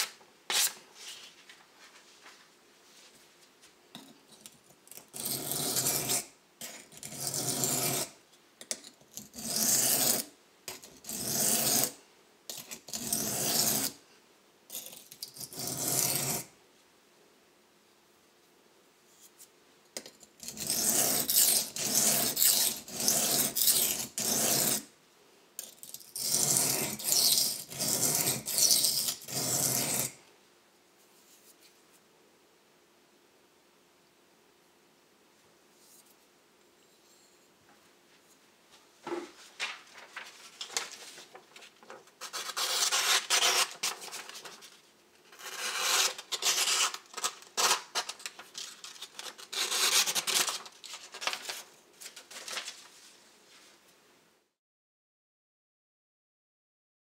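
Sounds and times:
knife scraping on sharpening stone: 5.2s - 8.1s, 20.4s - 24.8s, 25.8s - 30.2s.

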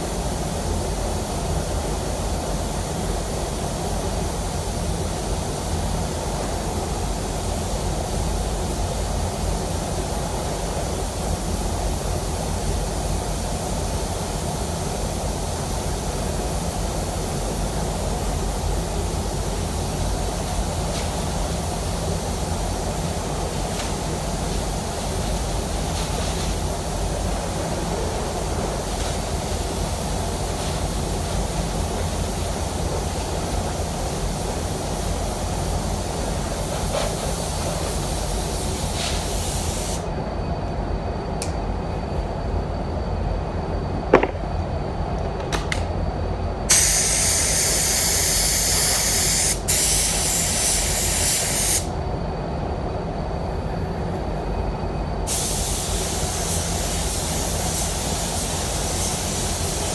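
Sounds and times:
low rumble of air flow: 0.0s - 48.2s
spray gun hissing: 28.7s - 40.0s, 46.7s - 51.9s, 55.3s - 59.9s.

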